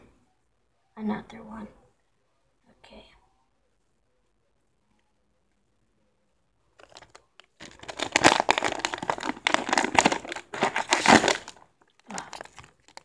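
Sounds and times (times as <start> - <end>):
foil pack crinkling and tearing: 6.8 - 13.0.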